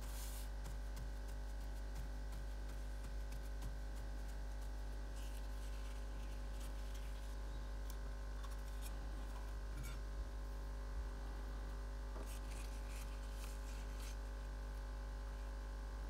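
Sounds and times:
fingers handling moss: 0:00.0 - 0:10.0, 0:12.2 - 0:14.2
low electrical hum: 0:00.0 - 0:16.0.

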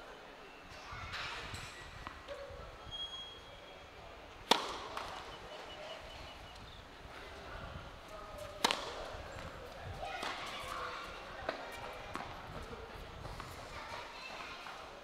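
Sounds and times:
tennis ball impacts: 0:04.4 - 0:05.2, 0:08.4 - 0:09.5.

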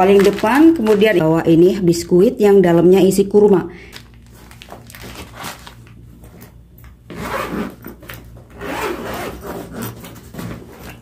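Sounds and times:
fabric rubbing: 0:07.1 - 0:07.8, 0:08.6 - 0:09.9
zipper rasping shut: 0:07.1 - 0:11.0.

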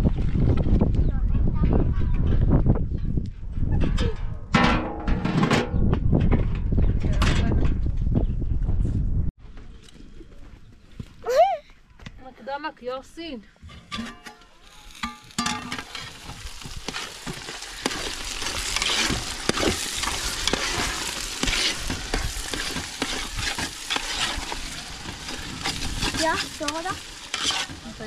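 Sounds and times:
onions sizzling in a pot: 0:14.6 - 0:28.0
metal spoon scraping a pot: 0:17.8 - 0:27.9.

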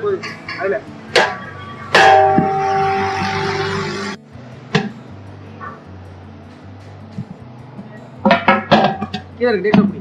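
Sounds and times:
quiet background music: 0:00.0 - 0:10.0.

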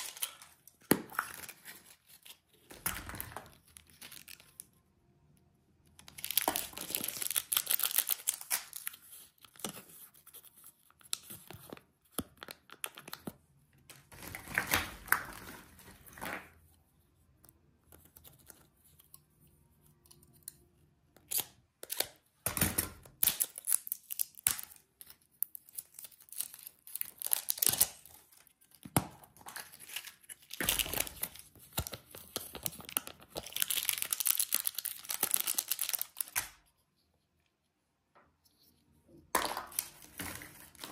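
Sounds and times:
plastic wrappers crinkling and tearing: 0:00.0 - 0:04.7, 0:06.0 - 0:09.8, 0:13.9 - 0:16.5, 0:23.1 - 0:36.7, 0:39.7 - 0:40.9.

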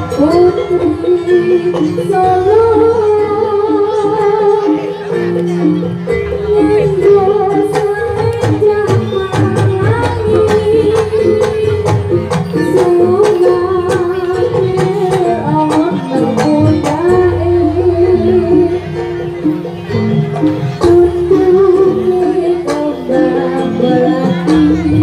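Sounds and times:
drums beaten quickly: 0:05.7 - 0:18.8.

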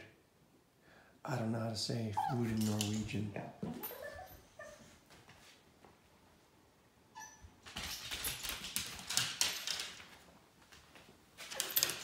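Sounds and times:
dog whimpering: 0:02.2 - 0:02.8, 0:03.8 - 0:04.9.

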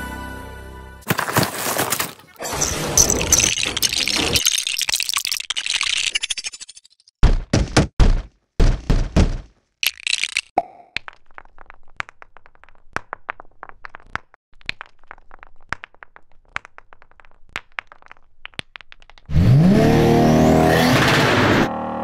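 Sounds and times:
car engine revving: 0:19.3 - 0:22.0.

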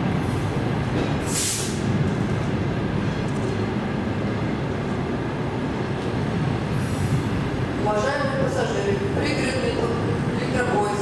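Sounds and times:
train rolling in: 0:00.0 - 0:11.0
short hiss: 0:01.2 - 0:01.8.

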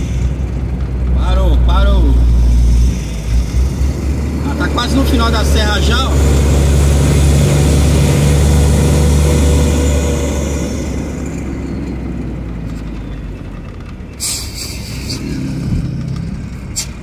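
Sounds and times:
truck engine drone: 0:00.0 - 0:17.0
brief hiss: 0:14.2 - 0:15.2.

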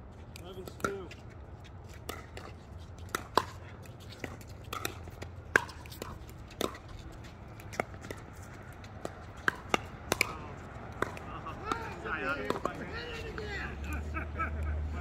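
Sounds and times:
paddles striking plastic ball: 0:08.8 - 0:12.8.

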